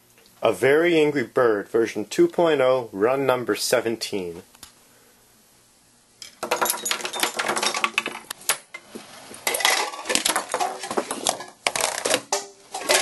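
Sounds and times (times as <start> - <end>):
small objects clattering on tables: 6.2 - 13.0.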